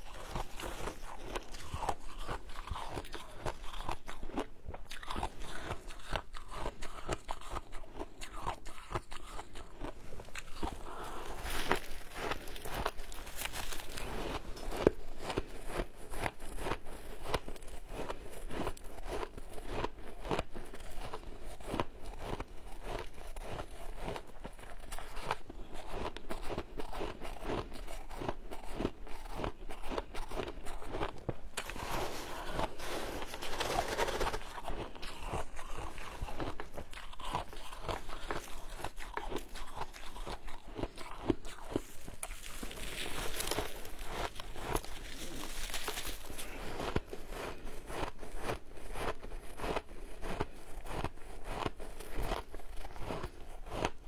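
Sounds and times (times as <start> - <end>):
ice crunching being chewed: 0.0 - 54.0
gloved hands scooping ice: 31.6 - 36.8, 41.8 - 48.1.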